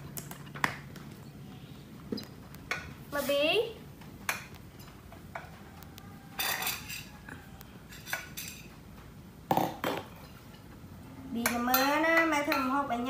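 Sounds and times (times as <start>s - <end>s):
metal spoon clinking on plate: 6.4s - 7.2s.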